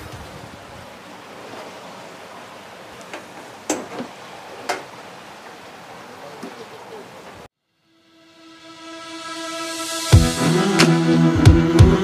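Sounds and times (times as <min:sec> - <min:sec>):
water bubbling and churning: 0:00.0 - 0:07.5.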